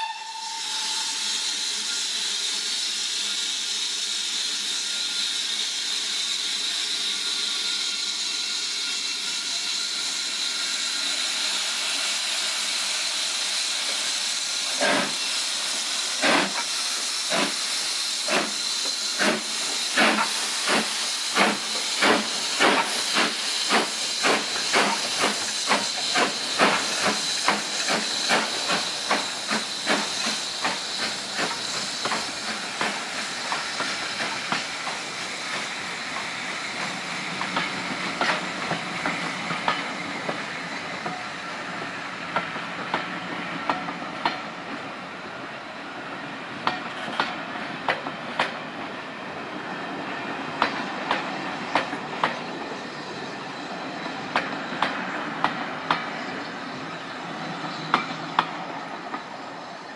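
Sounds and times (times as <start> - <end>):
steam locomotive exhaust beats: 0.0 - 45.3
steam hissing: 0.0 - 59.9
train coaches rolling by: 0.0 - 59.9
rail clicks: 13.7 - 44.9, 46.2 - 48.9, 49.9 - 53.1, 53.7 - 59.4.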